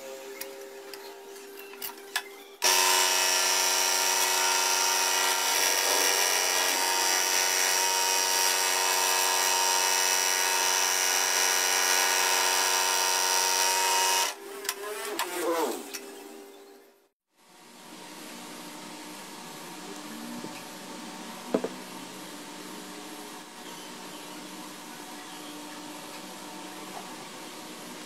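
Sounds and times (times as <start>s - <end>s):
scroll saw whining: 2.6s - 15.8s.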